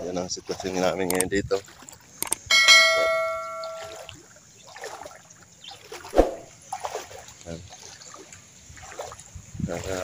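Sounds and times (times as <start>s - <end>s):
footsteps wading through water: 0.0s - 10.0s
metallic bell-like ring: 2.5s - 4.1s.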